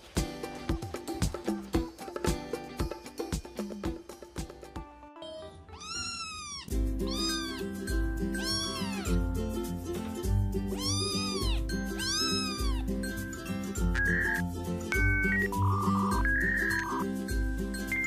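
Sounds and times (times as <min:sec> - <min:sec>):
cat meowing: 0:05.3 - 0:07.6, 0:08.4 - 0:09.1, 0:10.8 - 0:12.8
background music with bass beat: 0:12.6 - 0:18.0.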